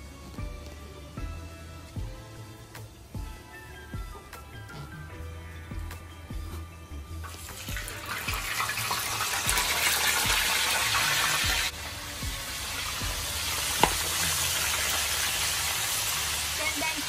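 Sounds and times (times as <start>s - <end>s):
fish sizzling in hot oil: 7.2s - 17.0s.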